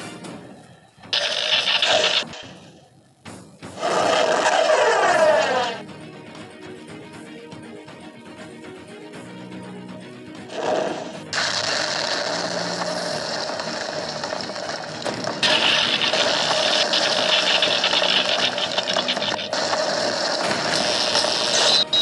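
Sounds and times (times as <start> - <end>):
rapid ratchet-like clicking: 15.4 - 21.6.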